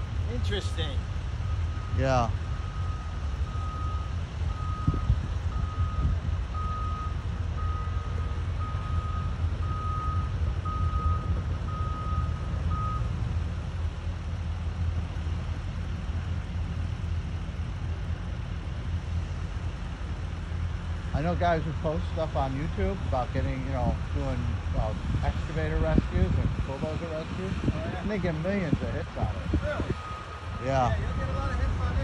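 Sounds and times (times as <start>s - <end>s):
low steady rumble: 0.0s - 32.0s
reversing alarm beeping: 1.4s - 13.2s, 29.2s - 32.0s.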